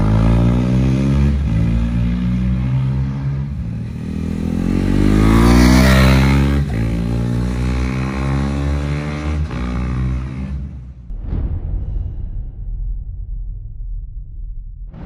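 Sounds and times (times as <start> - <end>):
motorcycle accelerating past: 0.0 - 10.6.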